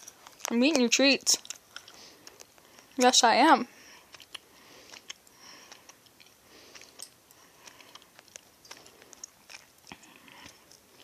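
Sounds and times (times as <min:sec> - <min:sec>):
person chewing: 0:00.0 - 0:03.0, 0:03.8 - 0:11.0.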